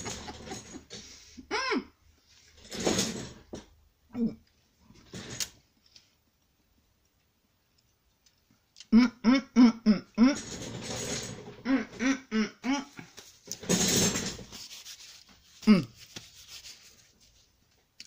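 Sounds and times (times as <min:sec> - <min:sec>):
woman mumbling with mouth full: 0:08.9 - 0:10.4, 0:11.6 - 0:13.2, 0:15.6 - 0:16.0.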